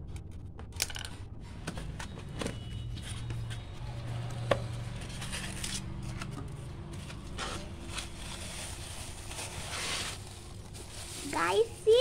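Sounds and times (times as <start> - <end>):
cardboard and styrofoam rustling: 6.9 - 12.0.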